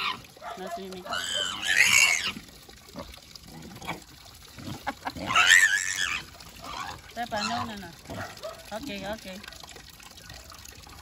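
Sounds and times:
pig squealing: 0:00.0 - 0:00.3, 0:01.0 - 0:02.4, 0:05.1 - 0:08.4
water trickling from a tap: 0:00.0 - 0:11.0.

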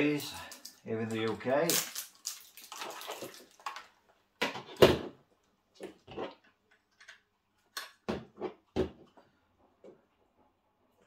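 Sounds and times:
plastic wrap rustling: 0:01.4 - 0:04.0.

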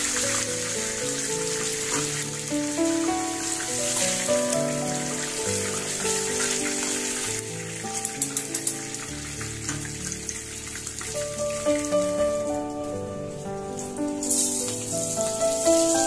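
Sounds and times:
background music: 0:00.0 - 0:16.0
oil sizzling in a frying pan: 0:00.0 - 0:16.0
small crackles: 0:03.8 - 0:16.0.

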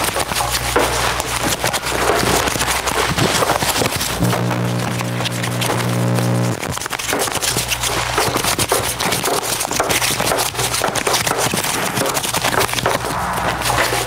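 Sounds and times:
packaging crumpling and crinkling: 0:00.0 - 0:04.2
low steady hum: 0:04.0 - 0:06.7.

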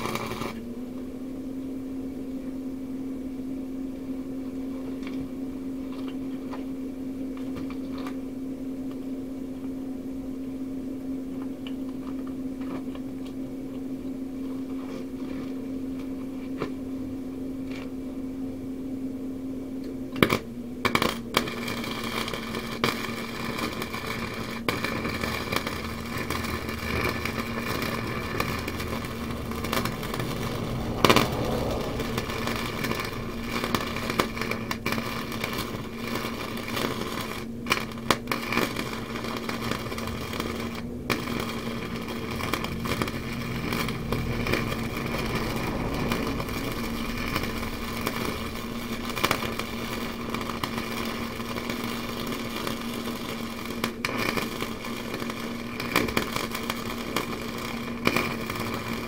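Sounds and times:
welding arc pop: 0:00.0 - 0:00.6, 0:04.9 - 0:08.2, 0:19.8 - 0:59.0
arc welding crackling: 0:00.0 - 0:01.1, 0:03.8 - 0:18.4, 0:19.4 - 0:59.0
low hum: 0:24.2 - 0:53.0.

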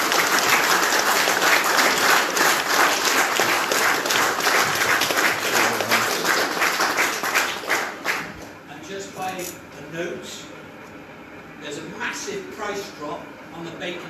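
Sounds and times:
audience applauding: 0:00.0 - 0:08.5.

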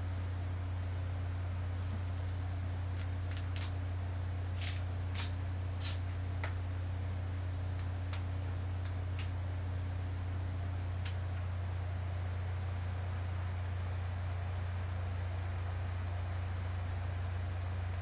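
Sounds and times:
low electrical hum: 0:00.0 - 0:18.0
bandage rustling: 0:04.6 - 0:06.6.

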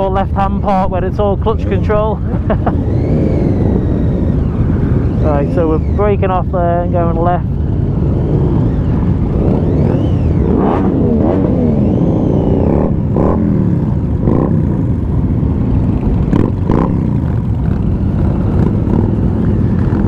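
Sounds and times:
motorcycle engines revving: 0:00.0 - 0:20.0
steady low rumble: 0:00.0 - 0:20.0.

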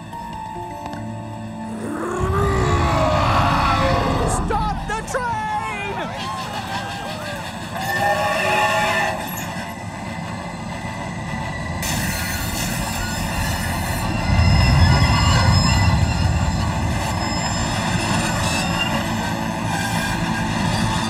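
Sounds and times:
heavy rumble: 0:01.8 - 0:06.2, 0:09.9 - 0:20.7
train wheels screeching on rails: 0:05.6 - 0:21.0.

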